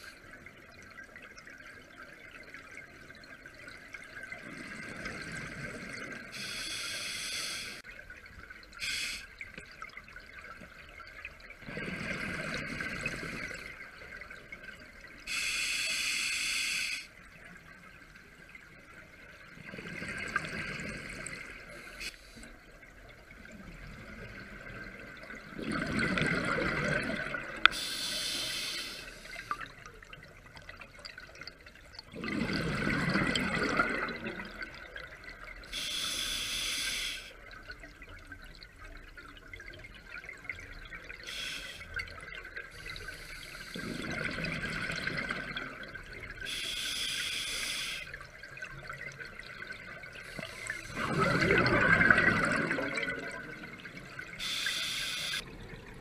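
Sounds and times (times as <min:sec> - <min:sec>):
exhaled bubbles gurgling: 0:00.0 - 0:15.4, 0:17.3 - 0:56.0
regulator hissing inhalations: 0:06.4 - 0:07.8, 0:08.8 - 0:09.3, 0:15.3 - 0:17.1, 0:27.7 - 0:29.6, 0:35.8 - 0:37.3, 0:41.3 - 0:41.9, 0:46.5 - 0:48.1, 0:54.4 - 0:55.4.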